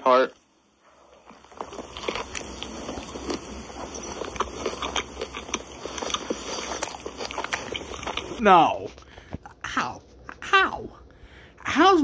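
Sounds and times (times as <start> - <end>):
person chewing food: 0.9 - 10.4.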